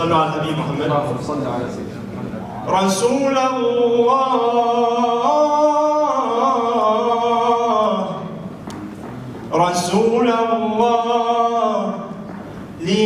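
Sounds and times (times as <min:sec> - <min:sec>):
man singing unaccompanied: 0:02.7 - 0:08.5, 0:09.5 - 0:12.2, 0:12.8 - 0:13.0.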